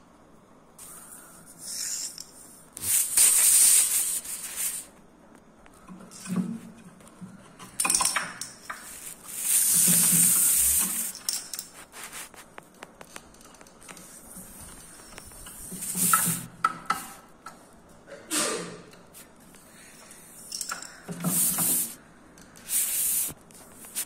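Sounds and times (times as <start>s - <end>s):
steel bearing clinking on tile floor: 7.6s - 8.9s, 10.2s - 11.8s, 20.4s - 21.1s.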